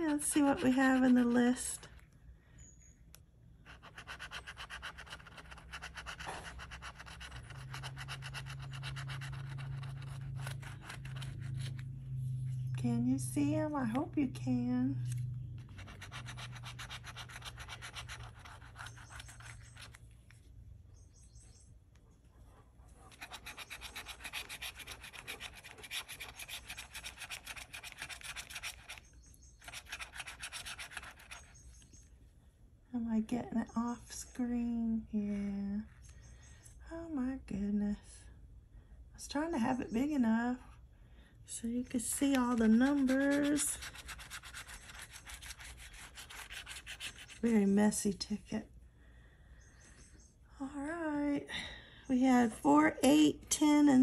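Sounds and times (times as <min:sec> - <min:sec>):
key scraping lottery ticket: 0:03.8 - 0:12.0, 0:15.6 - 0:20.0, 0:42.0 - 0:47.4.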